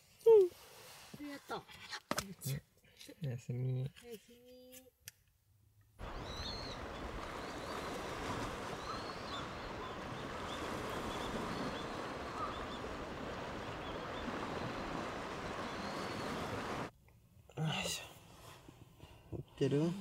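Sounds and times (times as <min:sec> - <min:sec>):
wind: 0:00.0 - 0:20.0
sea surf: 0:06.0 - 0:16.9.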